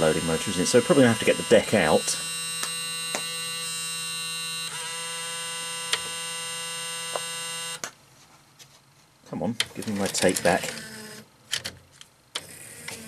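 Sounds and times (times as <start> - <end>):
small motor whining: 0.0 - 7.8, 10.4 - 11.2, 12.4 - 13.0.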